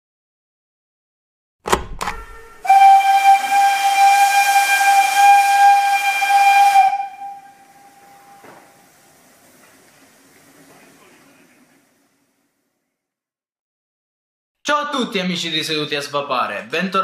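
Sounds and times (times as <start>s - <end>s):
steam whistle blowing: 2.2s - 9.0s.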